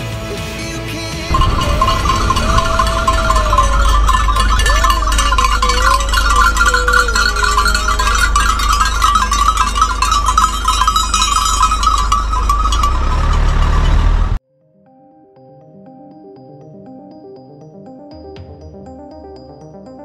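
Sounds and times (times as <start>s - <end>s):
sheep bells clinking: 1.2s - 14.4s
car rumbling slowly: 1.3s - 14.4s.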